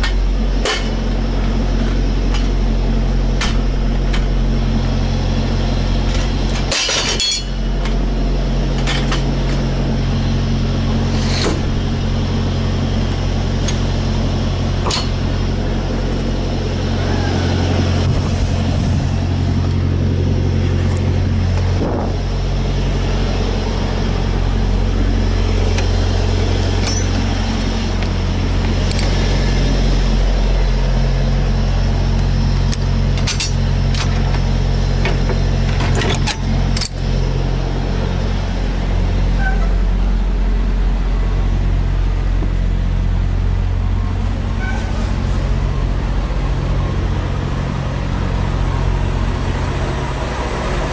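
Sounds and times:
low engine drone: 0.0s - 50.9s
metal clanks and clinks: 6.1s - 8.0s, 26.8s - 27.3s, 32.7s - 34.4s, 35.0s - 37.0s.

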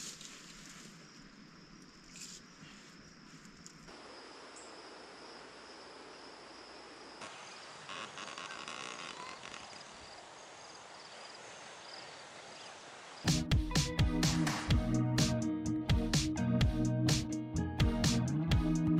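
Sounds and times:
insects chirping: 0.0s - 13.4s
steady outdoor hiss: 0.0s - 15.4s.

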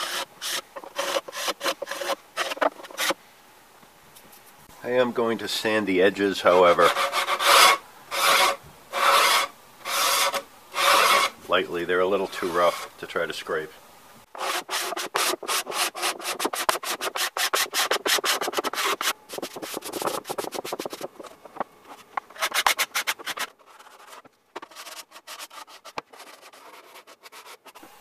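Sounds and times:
sanding sponge rubbing wood: 0.0s - 3.2s, 6.5s - 11.4s, 14.4s - 27.8s.

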